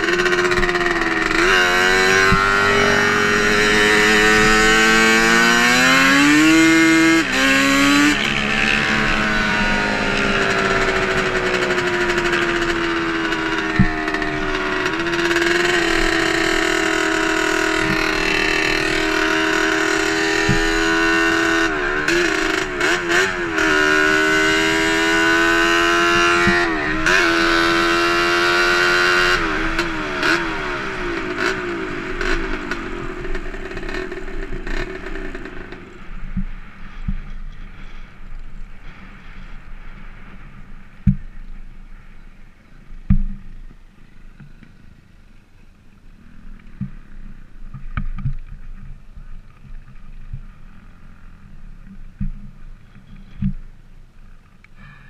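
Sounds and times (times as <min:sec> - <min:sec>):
two-stroke engine revving high: 0:00.0 - 0:36.4.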